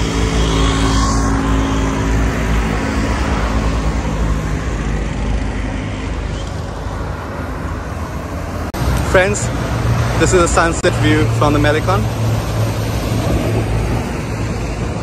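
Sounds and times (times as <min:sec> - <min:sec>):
car engine hum: 0:00.0 - 0:15.0
steady rushing noise: 0:00.0 - 0:15.0.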